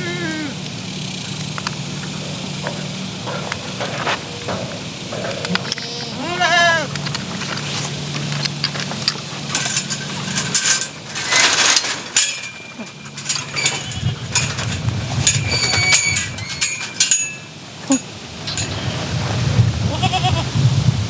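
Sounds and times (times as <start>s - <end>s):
goat bleating: 0.0s - 0.6s, 5.6s - 7.0s, 19.8s - 20.5s
metallic gate rattles: 1.4s - 19.1s.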